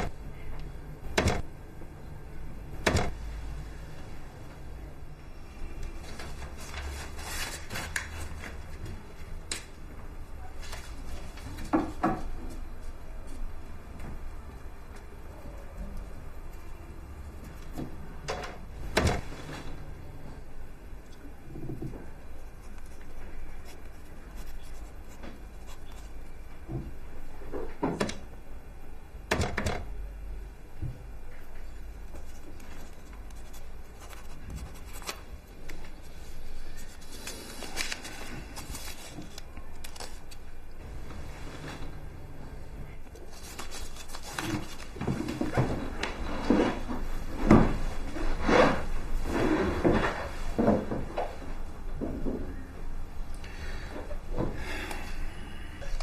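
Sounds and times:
low room hum: 0:00.0 - 0:56.0
paper rustling: 0:05.6 - 0:09.7, 0:10.5 - 0:11.7, 0:22.4 - 0:26.4, 0:32.1 - 0:42.1, 0:43.0 - 0:47.1.

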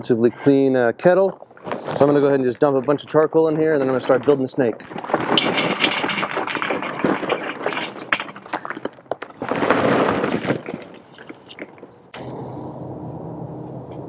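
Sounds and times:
charcoal clattering onto grill grate: 0:04.8 - 0:11.8.

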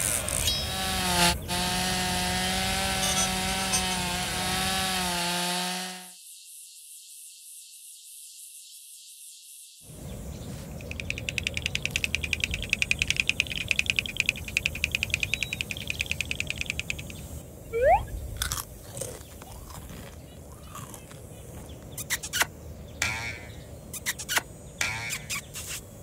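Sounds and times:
crunchy clicks: 0:18.4 - 0:23.2.

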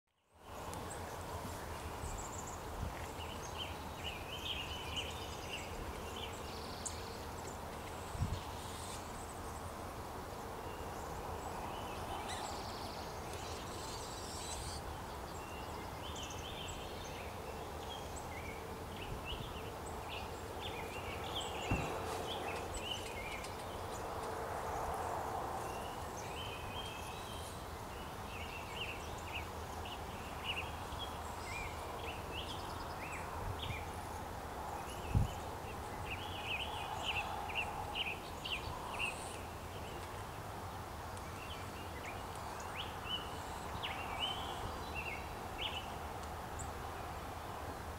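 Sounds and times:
low bumps: 0:21.6 - 0:22.5.

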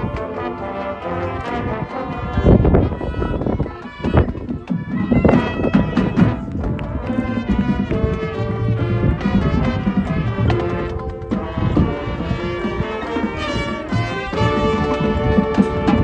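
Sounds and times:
marching band playing: 0:00.0 - 0:16.0.

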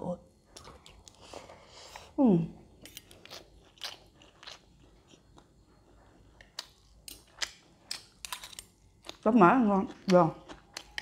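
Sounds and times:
chewing crispy food crunches: 0:02.8 - 0:11.0.

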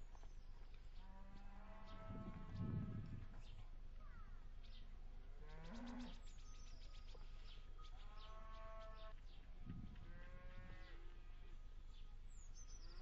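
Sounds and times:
farm livestock calling: 0:01.0 - 0:03.4, 0:07.8 - 0:09.1, 0:09.8 - 0:11.5.

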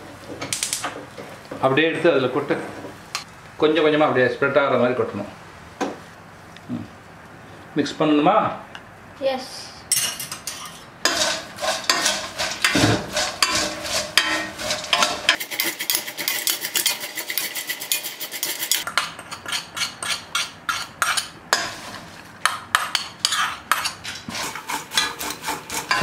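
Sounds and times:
utensils scraping metal pot: 0:10.0 - 0:22.1, 0:22.7 - 0:26.0.

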